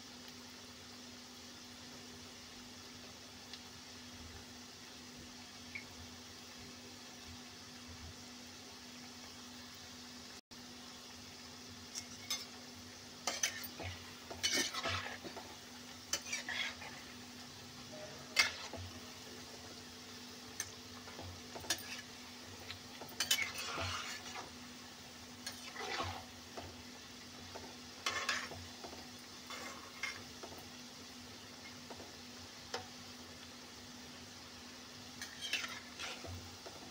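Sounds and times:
food deep-frying in oil: 0.0 - 36.9
spatula scraping a pan: 11.9 - 12.6, 13.2 - 19.8, 20.5 - 24.6, 25.4 - 26.8, 27.4 - 30.8, 35.2 - 36.9.

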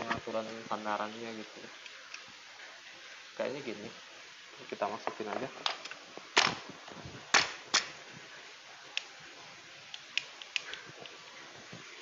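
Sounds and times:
chair parts knocking and clicking: 5.1 - 6.6.

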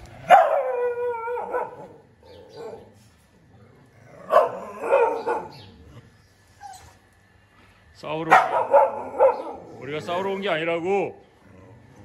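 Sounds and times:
dogs barking: 0.2 - 3.0, 4.2 - 5.9, 8.2 - 10.3.

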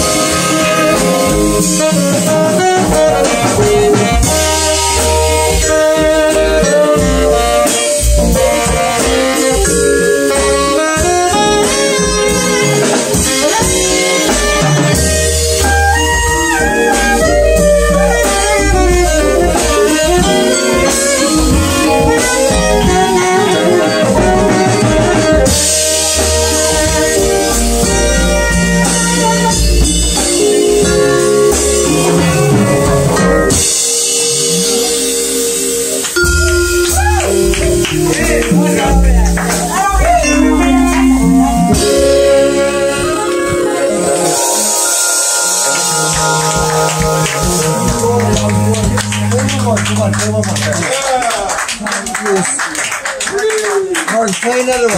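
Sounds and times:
saxophone: 0.0 - 51.4
upright bass: 0.0 - 52.5
congas: 0.0 - 54.9
drum kit: 0.0 - 54.9
vibraphone: 30.0 - 38.6, 40.2 - 49.4.

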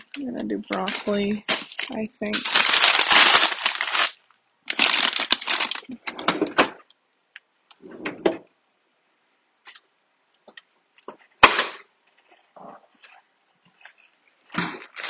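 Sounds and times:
plastic bags rustling and crinkling: 0.0 - 6.6, 11.0 - 15.0.

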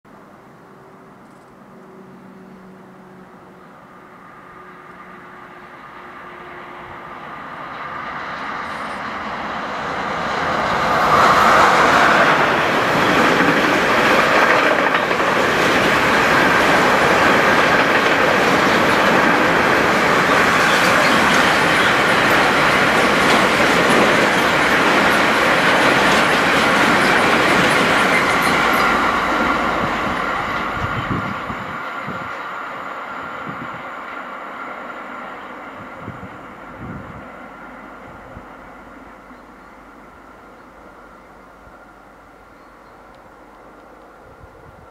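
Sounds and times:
electric locomotive passing: 0.2 - 44.9
train wheels clattering over rail joints: 11.0 - 29.5.

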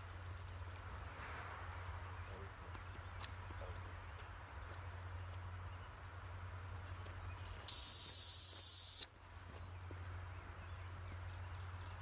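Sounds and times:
high-pitched whistle blast: 7.7 - 9.2.

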